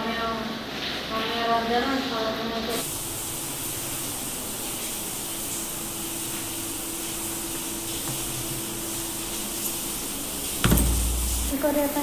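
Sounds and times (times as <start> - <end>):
heavy rain hissing: 2.7 - 12.0.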